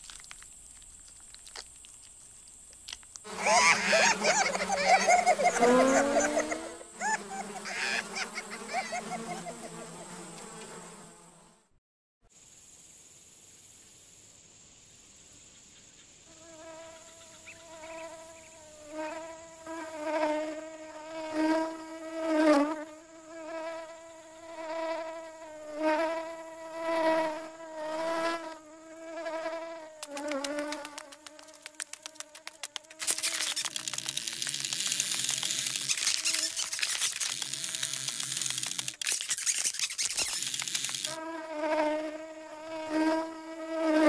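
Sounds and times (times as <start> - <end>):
flying insect buzzing: 3.2 - 11.7, 16.3 - 44.0
rapid fine clicks: 30.0 - 41.2.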